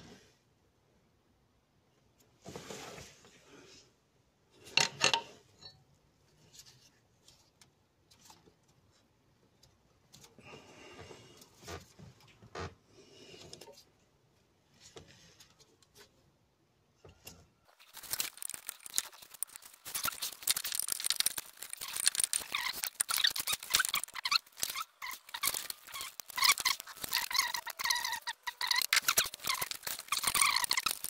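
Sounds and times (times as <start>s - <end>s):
plastic bag crinkling: 17.7s - 31.0s.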